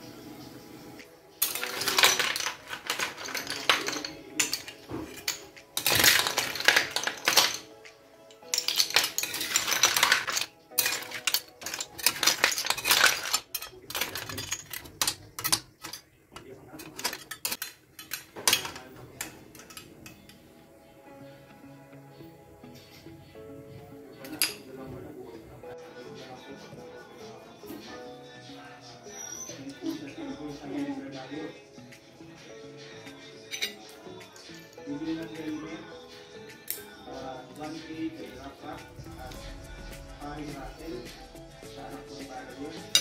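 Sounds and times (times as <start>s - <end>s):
seashells clinking against dishes: 1.4s - 20.4s, 24.2s - 24.7s, 33.4s - 35.6s, 38.9s - 43.0s.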